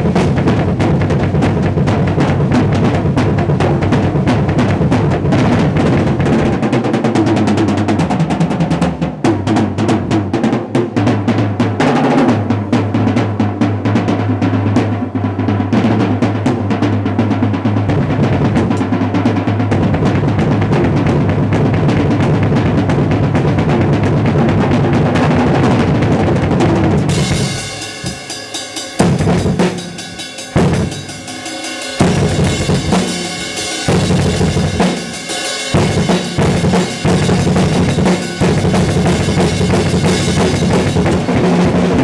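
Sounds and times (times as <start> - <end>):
bass drum: 0.0 - 42.0
drum kit solo: 0.0 - 42.0
cymbal hits: 27.1 - 41.2.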